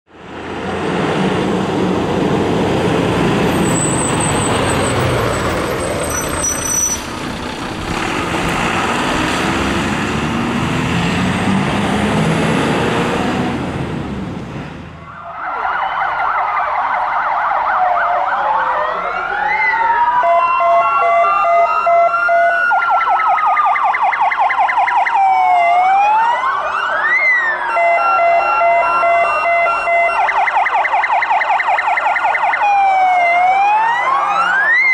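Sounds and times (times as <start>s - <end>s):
fire engine sirens wailing: 0.1s - 34.9s
dense loud rumbling: 7.0s - 15.0s.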